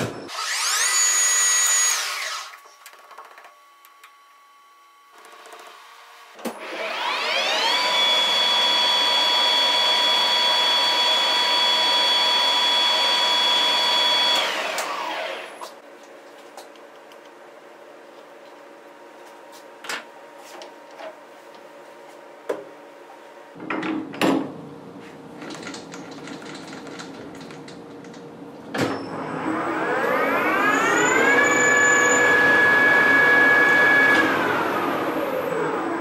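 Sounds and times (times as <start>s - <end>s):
lathe spindle whine: 6.6s - 15.6s, 29.1s - 36.0s.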